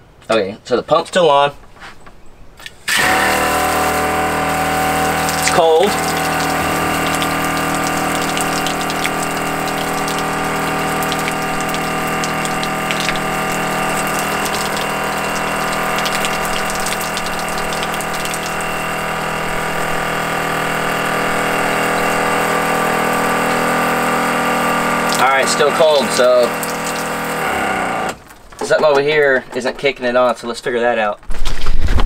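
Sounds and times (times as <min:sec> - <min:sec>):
electric water pump running: 0:02.8 - 0:28.7
shower spraying onto wooden floor: 0:02.9 - 0:27.6.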